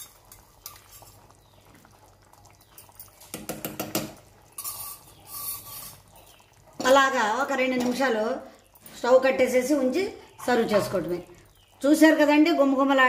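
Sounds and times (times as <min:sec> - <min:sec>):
ladle stirring simmering curry: 0:00.1 - 0:06.8
ladle clicking against pan: 0:03.1 - 0:04.9.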